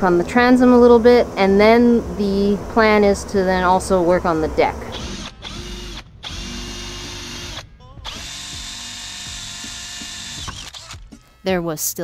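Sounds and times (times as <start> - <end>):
power drill drilling fiberglass: 4.9 - 11.0.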